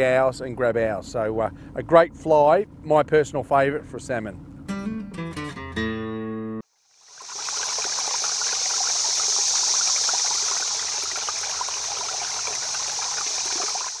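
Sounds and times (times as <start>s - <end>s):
water-like rushing hiss: 6.7s - 14.0s.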